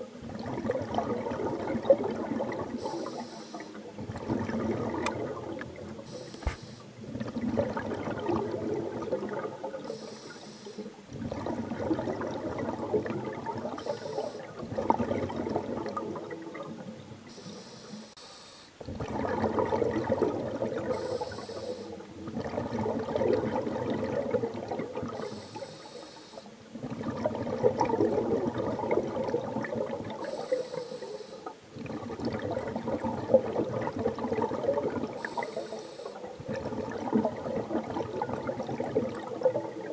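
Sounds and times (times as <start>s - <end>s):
exhaled air bubbling underwater: 0.0s - 18.1s, 18.7s - 39.9s
regulator inhalation hiss: 2.8s - 3.9s, 6.1s - 6.9s, 9.9s - 11.0s, 13.8s - 14.5s, 17.3s - 18.8s, 20.9s - 22.0s, 25.2s - 26.6s, 30.2s - 31.6s, 35.2s - 36.3s.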